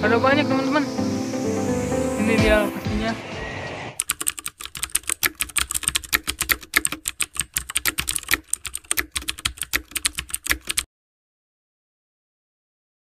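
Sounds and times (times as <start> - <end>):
keyboard typing clicks: 4.0 - 10.9.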